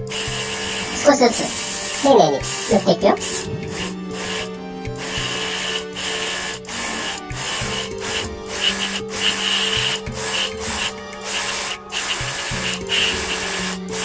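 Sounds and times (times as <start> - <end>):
airbrush hissing: 0.0 - 14.0
background music: 0.0 - 14.0.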